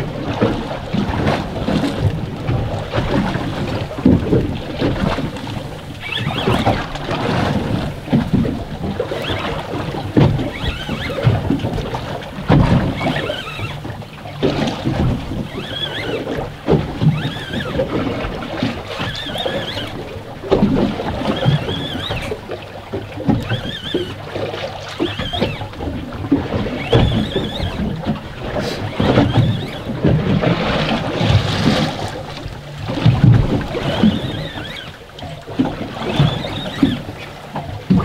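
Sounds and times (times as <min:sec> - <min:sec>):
water sloshing against boat hull: 0:00.0 - 0:38.0
high squeaks: 0:05.9 - 0:06.9, 0:09.1 - 0:09.6, 0:10.4 - 0:11.3, 0:12.8 - 0:13.8, 0:15.4 - 0:16.3, 0:17.0 - 0:17.8, 0:19.0 - 0:20.0, 0:21.2 - 0:22.4, 0:23.4 - 0:24.2, 0:24.9 - 0:25.8, 0:26.7 - 0:27.9, 0:28.6 - 0:29.9, 0:33.7 - 0:35.0, 0:36.0 - 0:37.3.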